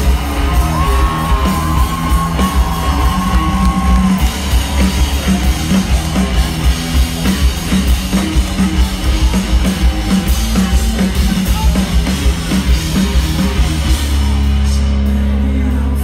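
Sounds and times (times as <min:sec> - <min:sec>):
live rock band playing: 0:00.0 - 0:16.0.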